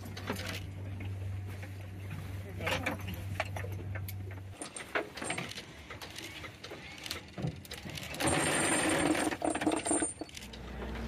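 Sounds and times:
chain rattling: 0:04.6 - 0:10.5
metal clinks: 0:08.0 - 0:10.5.

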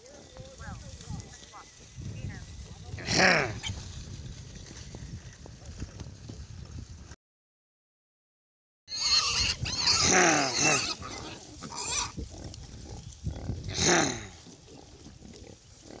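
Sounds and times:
piglets squealing: 0:08.9 - 0:13.0.

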